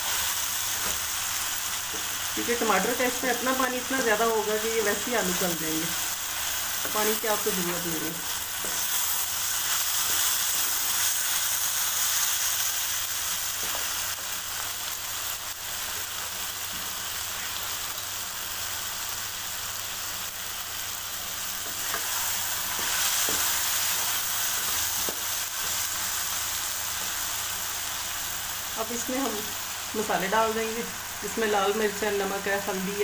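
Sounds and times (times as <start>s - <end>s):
vegetables sizzling in a wok: 0.0s - 33.0s.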